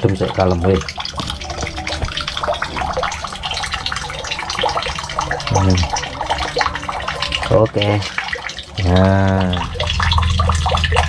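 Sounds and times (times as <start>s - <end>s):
water running and splashing: 0.0s - 11.0s.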